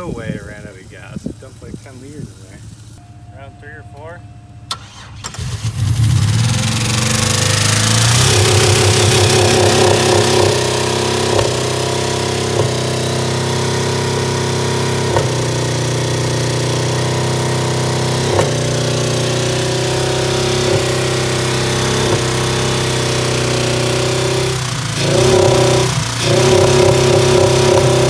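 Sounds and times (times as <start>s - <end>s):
car engine running: 0.1s - 28.0s
sharp engine knock: 15.1s - 15.9s, 18.2s - 18.8s.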